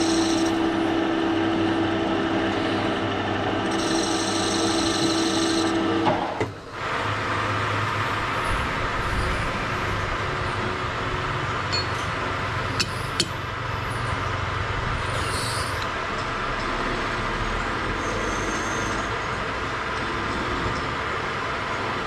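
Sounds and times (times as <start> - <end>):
lathe motor whine: 0.0 - 7.2, 15.6 - 20.6
mechanical hum: 0.0 - 22.0.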